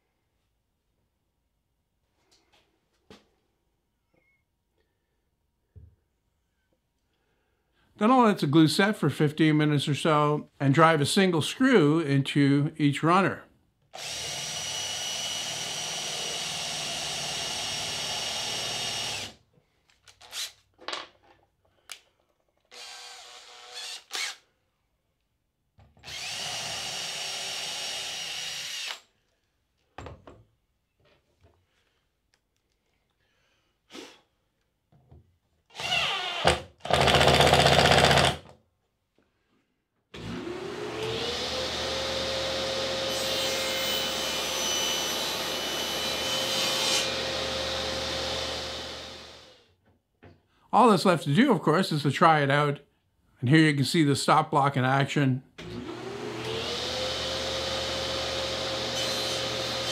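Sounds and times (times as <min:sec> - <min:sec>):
cordless drill driving screws: 0:13.9 - 0:19.4, 0:20.1 - 0:20.6, 0:22.7 - 0:24.4, 0:26.0 - 0:29.1, 0:35.7 - 0:38.5, 0:55.6 - 0:59.9
table saw motor whining: 0:40.2 - 0:49.5, 0:55.6 - 0:59.9.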